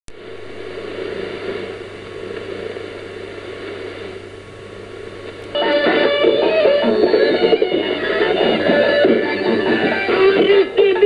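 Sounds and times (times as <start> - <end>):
radio static hiss: 0.1 - 11.0
plucked-string music on radio: 5.2 - 11.0.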